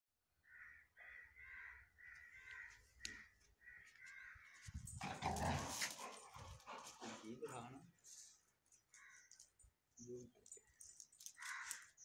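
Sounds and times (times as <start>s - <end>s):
crow cawing faintly: 0.4s - 4.7s.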